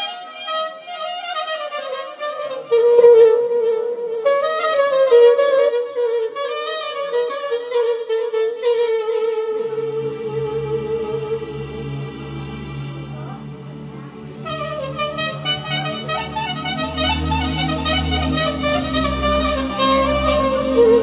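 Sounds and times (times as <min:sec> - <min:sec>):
soprano saxophone melody: 0:00.0 - 0:21.0
low accompaniment chords: 0:08.7 - 0:21.0.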